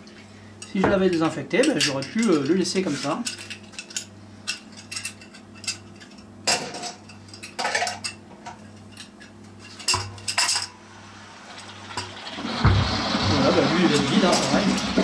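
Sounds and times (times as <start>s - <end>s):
metal keg clanking: 11.9s - 15.0s.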